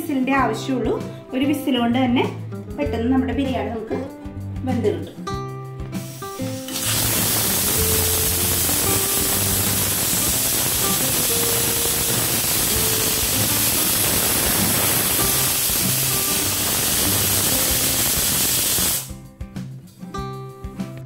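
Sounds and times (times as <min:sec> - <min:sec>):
pressure cooker whistle hissing steam: 0:06.2 - 0:19.1.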